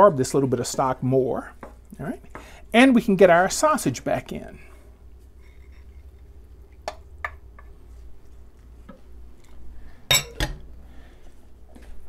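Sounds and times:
soft squishing: 3.8s - 10.0s
spoon scraping glass bowl: 5.4s - 6.2s.

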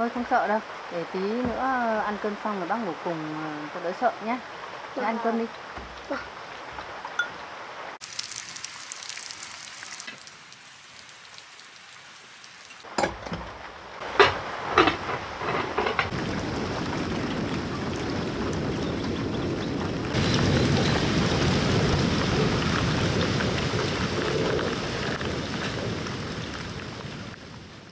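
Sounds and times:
heavy rain on muddy ground: 0.0s - 27.9s
thunder cracks: 15.9s - 27.7s.

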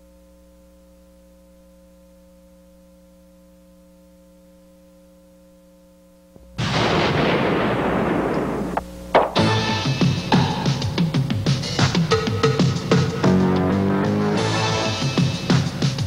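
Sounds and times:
faint electrical hum: 0.0s - 9.4s
loud explosion: 6.4s - 9.6s.

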